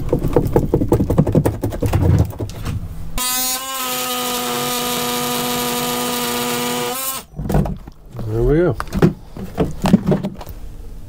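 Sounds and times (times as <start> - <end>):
wood knocking and cracking: 0.0 - 2.8, 7.4 - 10.5
oscillating multi-tool buzzing: 3.2 - 7.3.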